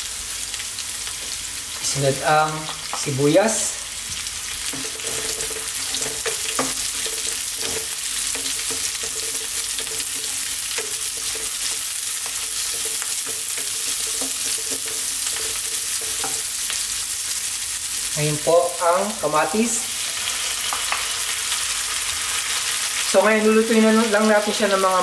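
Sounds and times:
vegetables sizzling in hot oil: 0:00.0 - 0:25.0
spatula scraping and tapping pan: 0:04.7 - 0:16.8.

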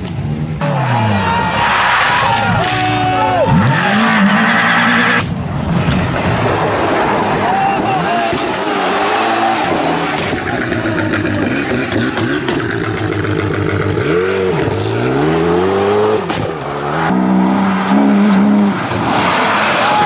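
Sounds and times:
rally car engine at full throttle: 0:00.0 - 0:20.0
car engine at high revs: 0:03.4 - 0:07.5, 0:08.1 - 0:20.0.

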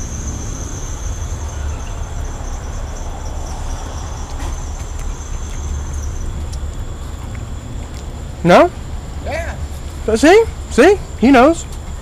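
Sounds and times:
low rumble: 0:00.0 - 0:11.2
crickets trilling: 0:00.0 - 0:12.0.

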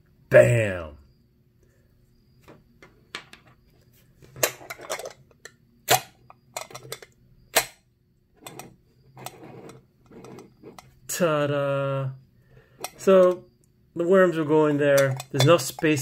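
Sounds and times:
scraping handling noise: 0:02.4 - 0:05.5, 0:06.5 - 0:07.2, 0:08.4 - 0:11.0, 0:12.8 - 0:13.5, 0:14.8 - 0:16.0.

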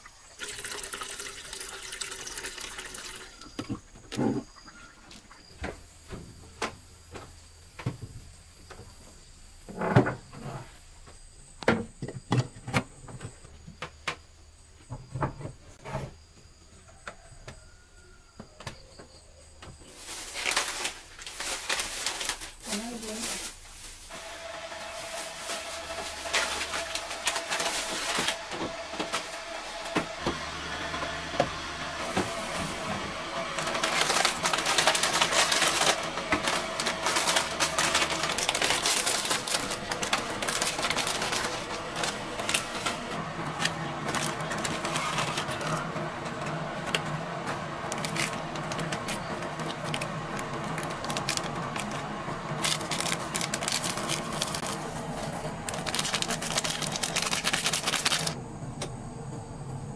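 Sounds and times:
plastic packets crinkling: 0:19.9 - 0:29.8, 0:32.0 - 0:58.4.

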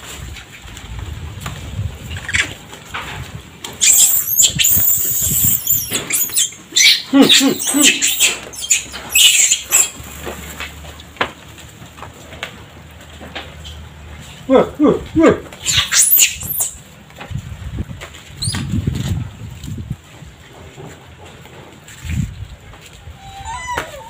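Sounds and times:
monkeys screeching: 0:03.8 - 0:10.0, 0:15.6 - 0:16.8, 0:23.2 - 0:24.0
short falling monkey calls: 0:03.8 - 0:10.0.

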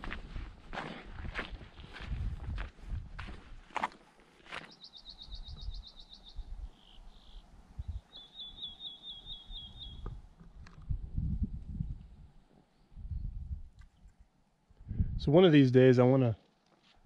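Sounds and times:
songbird trilling: 0:04.7 - 0:10.1.

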